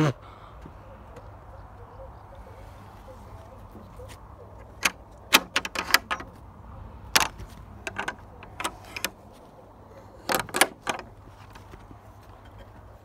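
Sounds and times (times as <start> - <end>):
gate latch clicking and rattling: 4.6 - 6.4, 7.1 - 9.2, 10.2 - 11.2.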